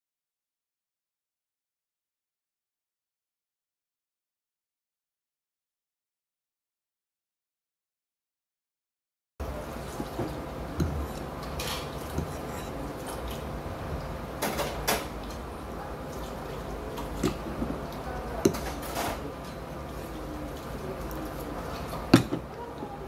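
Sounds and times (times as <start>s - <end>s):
low room hum: 9.4s - 23.0s.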